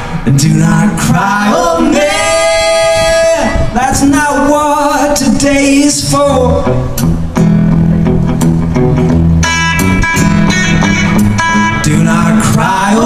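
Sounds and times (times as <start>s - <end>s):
bass notes: 0.0s - 13.0s
person singing: 0.3s - 6.8s
electric guitars playing: 6.3s - 13.0s
strummed guitar chord: 6.7s - 12.6s.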